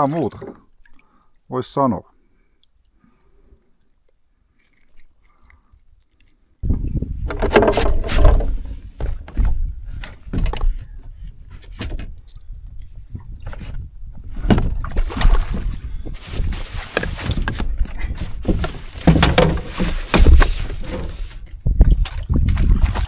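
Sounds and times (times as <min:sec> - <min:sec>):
wind rumbling on microphone: 0:06.6 - 0:23.0
fishing gear knocking and clattering: 0:07.2 - 0:09.6, 0:16.9 - 0:21.2.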